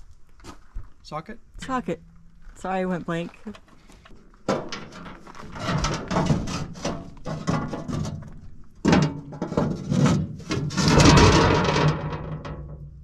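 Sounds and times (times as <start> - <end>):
metal knocks and clanks: 3.5 - 13.0
metal plate scraping: 3.5 - 13.0.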